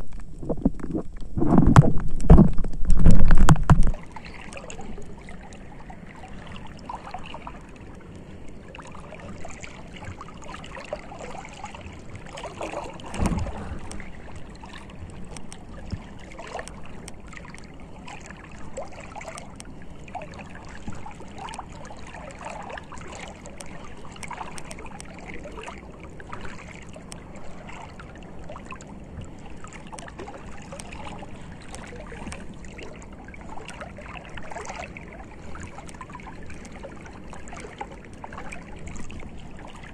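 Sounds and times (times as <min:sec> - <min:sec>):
seawater gurgling and sloshing: 0:00.0 - 0:39.9
water swish: 0:00.0 - 0:39.9
small scattered clicks: 0:13.8 - 0:17.7.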